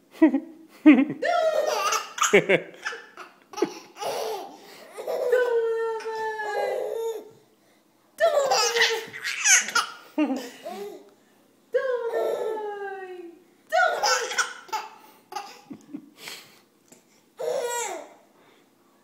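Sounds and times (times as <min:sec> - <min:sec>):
baby laughing: 0:01.2 - 0:07.3, 0:08.2 - 0:11.1, 0:13.8 - 0:15.9, 0:17.4 - 0:18.2.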